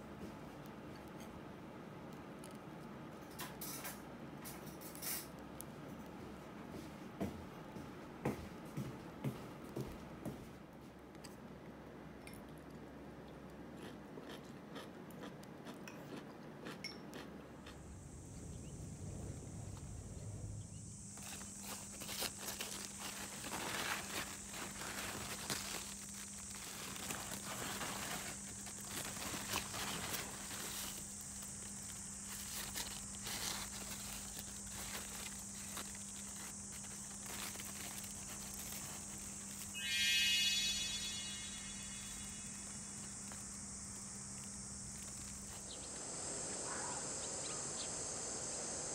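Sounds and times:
insects shrilling: 0:17.6 - 0:48.9
leaves rustling: 0:20.9 - 0:48.9
bright chime sound effect: 0:39.8 - 0:42.6.

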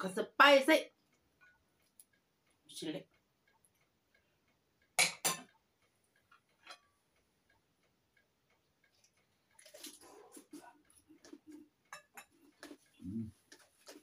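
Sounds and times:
cutlery clinking on a plate: 0:05.0 - 0:05.5, 0:11.9 - 0:12.8
eating noises: 0:08.9 - 0:14.0.

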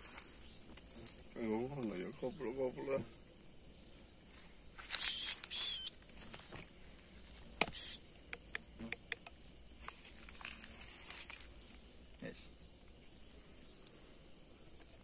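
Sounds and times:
small clicks and taps: 0:07.6 - 0:10.0.

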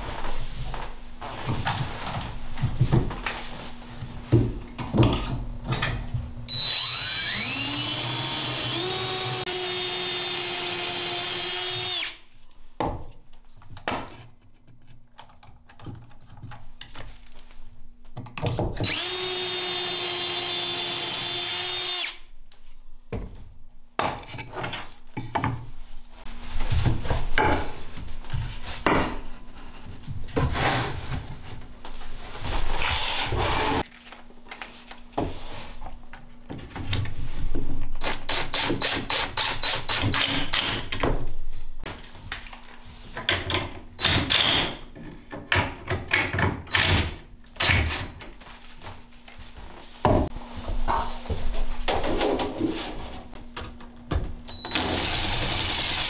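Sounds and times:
cordless drill driving screws: 0:06.5 - 0:12.2, 0:18.8 - 0:22.2.

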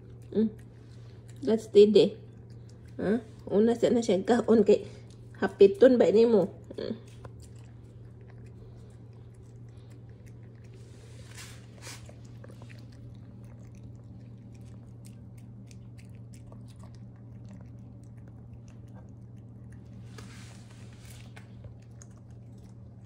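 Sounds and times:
puppy chewing and crunching: 0:00.0 - 0:23.0
steady low hum: 0:00.0 - 0:23.0.

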